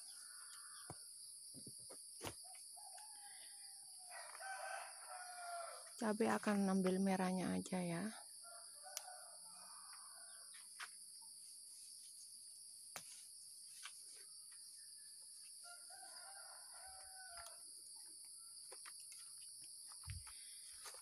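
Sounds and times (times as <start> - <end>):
high insect drone: 0.0 - 21.0
distant roosters crowing: 2.6 - 6.0, 8.4 - 10.6, 14.9 - 17.7.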